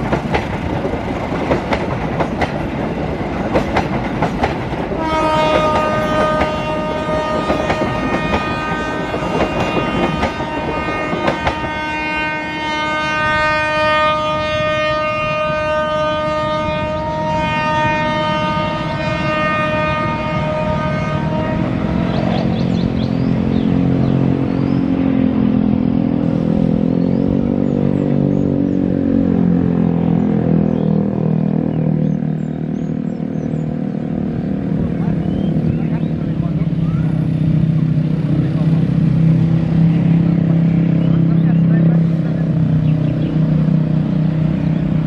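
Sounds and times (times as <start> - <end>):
train rumbling: 0.0 - 45.0
train horn blast: 4.8 - 27.6
road vehicle engine running: 21.4 - 45.0.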